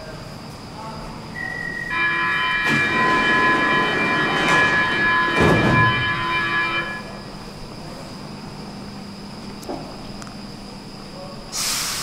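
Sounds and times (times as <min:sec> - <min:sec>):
train doors shutting: 0:01.3 - 0:07.8
electronic warning tone: 0:01.4 - 0:07.4.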